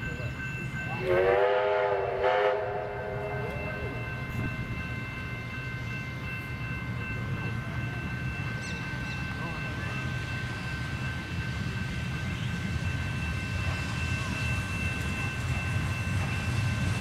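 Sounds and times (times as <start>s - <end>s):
train running rumble: 0.0s - 17.0s
steam locomotive whistle: 0.9s - 3.6s.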